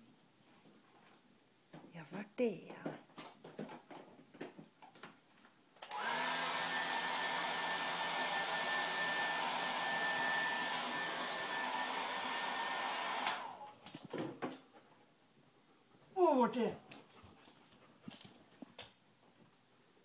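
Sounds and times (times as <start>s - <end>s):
small electric motor and fan running: 5.9s - 13.6s.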